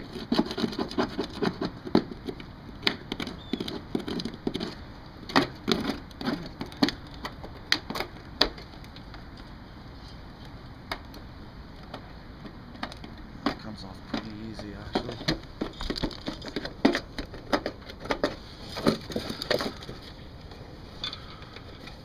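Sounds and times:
tool scraping caulking off metal: 0.0s - 8.6s.

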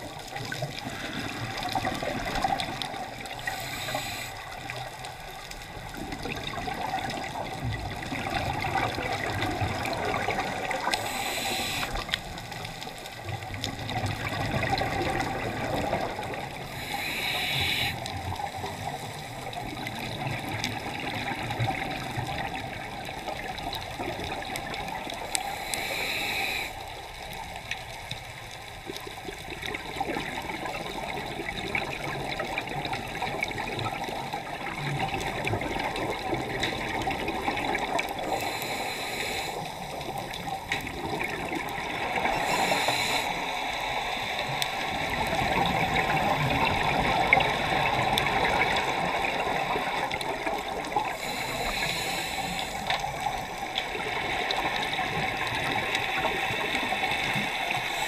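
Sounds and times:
regulator inhalation hiss: 3.3s - 4.8s, 10.8s - 12.2s, 16.6s - 19.4s, 25.4s - 27.0s, 38.2s - 40.0s, 42.1s - 45.8s, 51.0s - 53.8s, 56.0s - 58.0s
regulator exhale bubbling: 29.6s - 58.0s.

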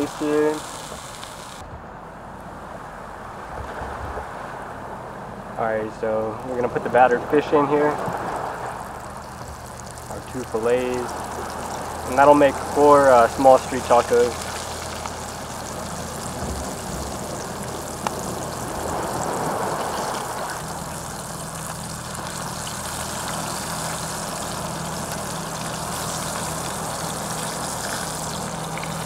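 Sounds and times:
fish frying in hot oil: 0.0s - 1.6s, 6.0s - 29.0s.

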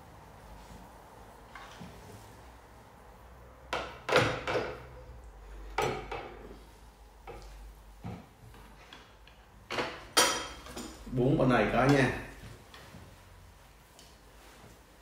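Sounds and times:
dishes and chopsticks knocking plates: 9.7s - 11.0s.

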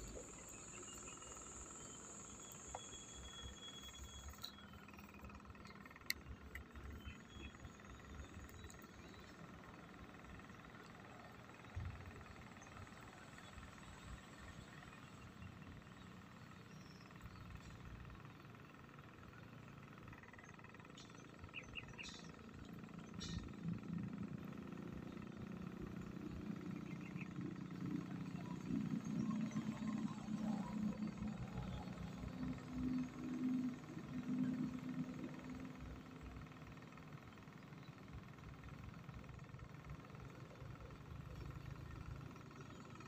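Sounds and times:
faint high chirps and clicks: 0.0s - 14.6s, 19.8s - 25.2s.

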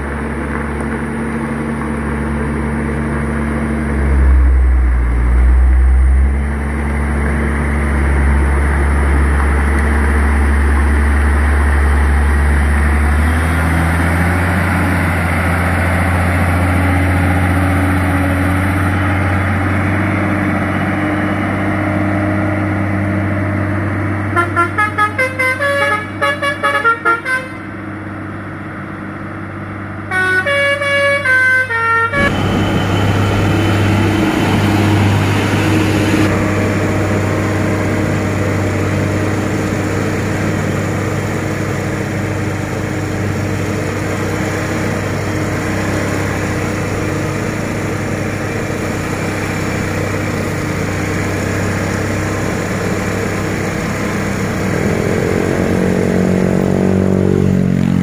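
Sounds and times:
road noise: 0.0s - 58.0s
truck engine running: 0.0s - 58.0s
musical truck horn notes: 24.3s - 27.7s, 30.1s - 32.4s.

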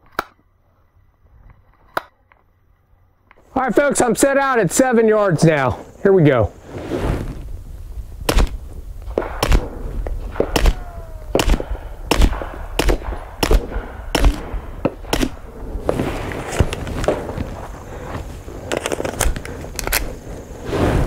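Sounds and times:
suppressed pistol shots: 8.3s - 15.5s.

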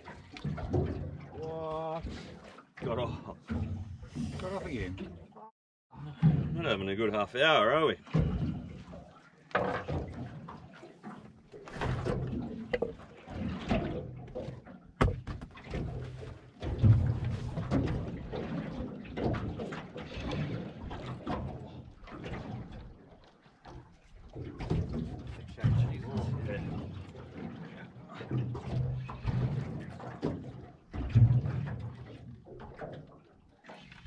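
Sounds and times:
water sloshing against hull: 0.0s - 34.0s
knocks on boat hull: 15.0s - 15.6s.

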